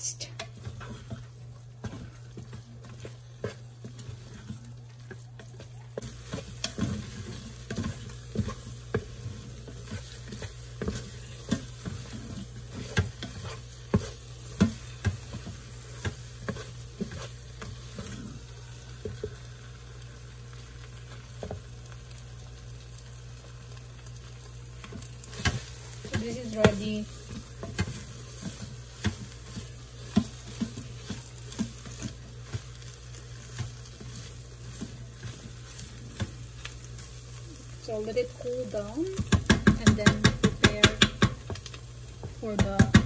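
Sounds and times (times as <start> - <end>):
wooden spoon stirring porridge: 0.2 - 43.0
spoon knocking against pan: 39.2 - 41.6.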